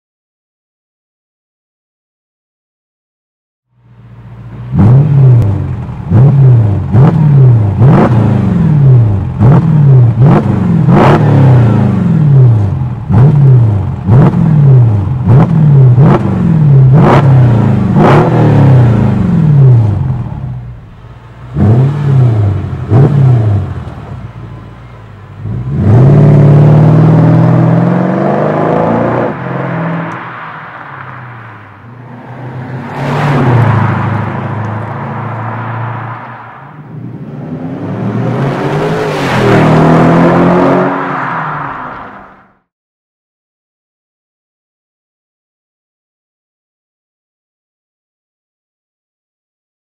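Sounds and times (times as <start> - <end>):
car engine revving: 4.0 - 42.6.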